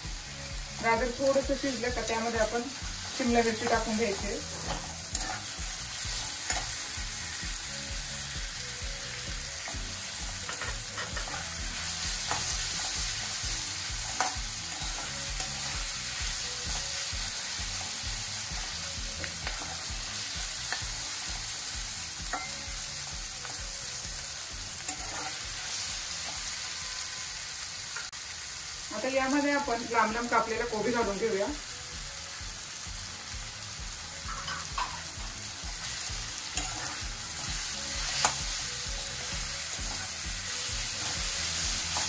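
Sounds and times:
vegetables sizzling in hot oil: 0.0 - 42.0
spatula scraping and tapping pan: 4.4 - 5.6, 9.6 - 11.6, 12.2 - 13.0, 14.0 - 15.6, 22.2 - 22.6, 24.8 - 25.5, 34.3 - 35.9, 36.5 - 38.5.

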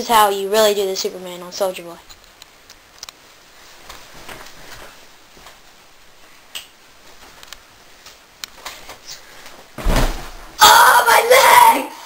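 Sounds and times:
faint clicks and light taps: 2.0 - 3.2, 3.8 - 9.6.

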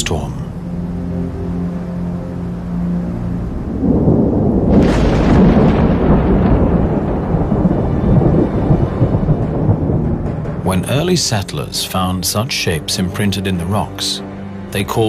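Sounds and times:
thunder rumbling and cracking: 3.5 - 12.0.

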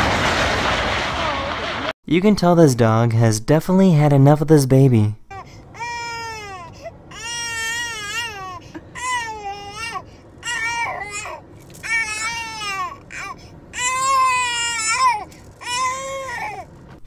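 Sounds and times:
baby crying: 5.3 - 16.8.

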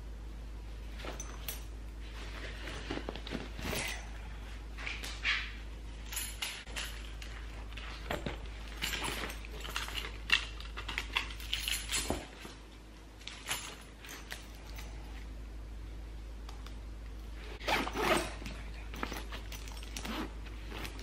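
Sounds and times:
bag rustling: 0.9 - 4.2, 17.6 - 21.0.

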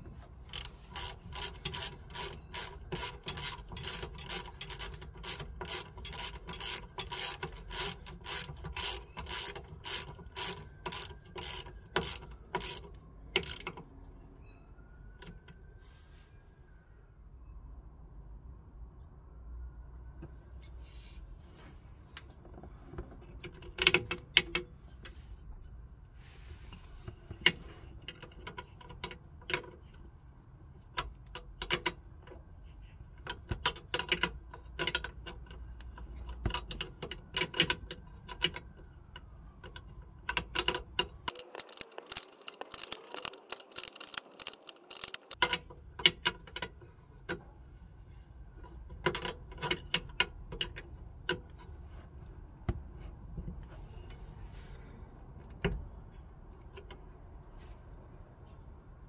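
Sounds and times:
spanner clicking on nut: 0.5 - 13.9, 33.2 - 38.7, 39.6 - 46.8, 48.9 - 51.6.

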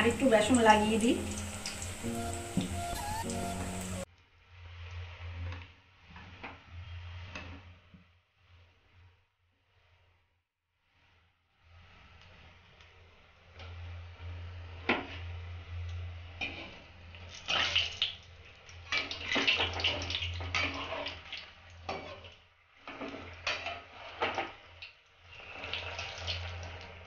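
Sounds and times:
metal spoon moving through oil: 0.0 - 4.1, 16.2 - 27.0
food deep-frying in oil: 0.0 - 5.6, 13.4 - 27.0.

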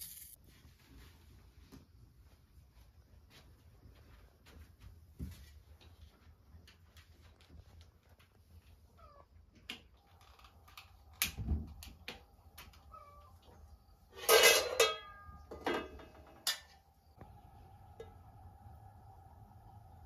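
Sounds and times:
metal cookware clinking on burner: 14.2 - 16.8.

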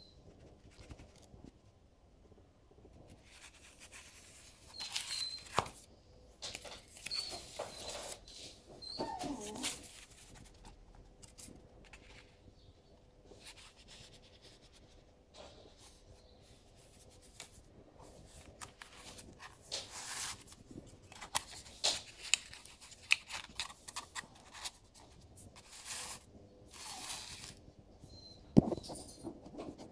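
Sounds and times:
paper rustling and sliding: 17.2 - 27.6.

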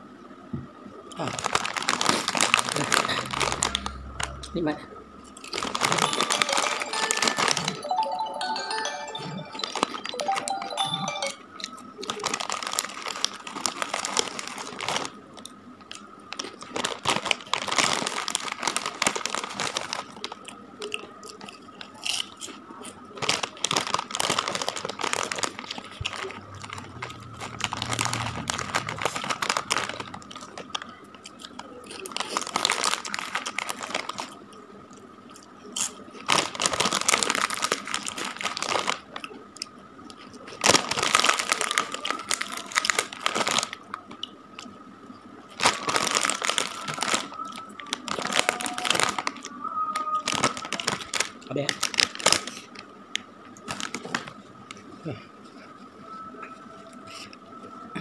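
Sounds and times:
crunchy snack chewing: 1.1 - 4.6, 5.2 - 7.7, 11.6 - 44.8
plastic packet crinkling: 1.2 - 4.5, 5.2 - 22.6, 23.2 - 34.5, 35.8 - 39.3, 40.2 - 44.7, 45.5 - 49.6, 50.2 - 52.8, 53.6 - 54.4.

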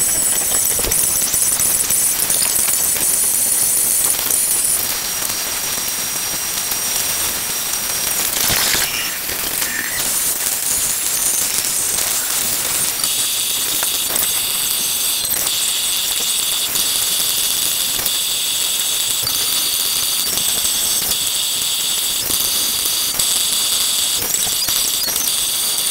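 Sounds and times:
scattered crackles: 0.0 - 17.0
steady whistling tones: 8.4 - 15.2.

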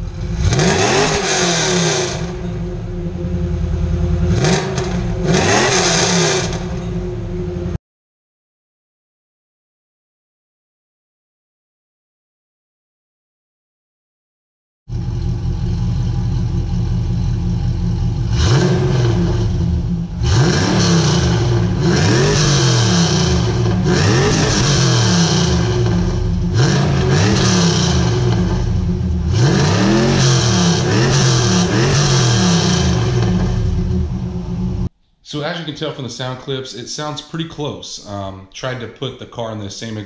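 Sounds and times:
car engine idling and revving: 0.0 - 7.8, 14.9 - 34.9.

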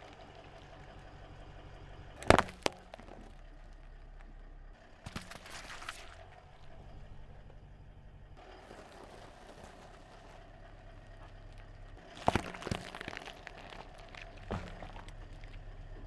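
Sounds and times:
low steady hum: 0.0 - 16.0
tyre crushing cucumbers: 2.2 - 3.4, 12.0 - 15.7.

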